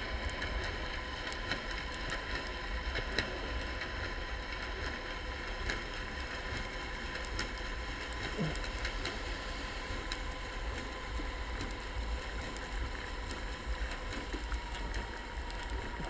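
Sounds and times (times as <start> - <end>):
faint scattered clicks: 0.0 - 9.2, 10.0 - 16.0
faint constant hum: 0.0 - 16.0
muffled underwater rumble: 0.0 - 16.0.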